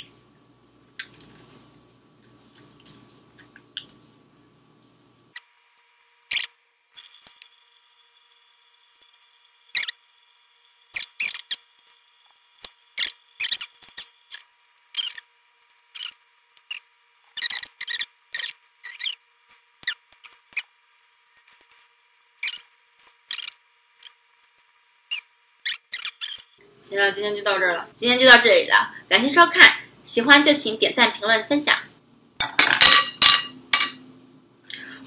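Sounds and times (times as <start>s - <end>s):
food crackling and snapping: 10.9s - 26.5s.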